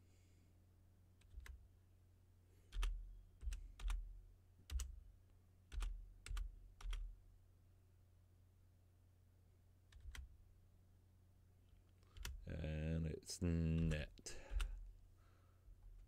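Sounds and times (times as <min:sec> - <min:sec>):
computer keyboard keystrokes: 0:01.2 - 0:01.6, 0:02.7 - 0:04.0, 0:04.7 - 0:05.0, 0:05.7 - 0:07.0, 0:09.9 - 0:10.3, 0:12.0 - 0:12.4.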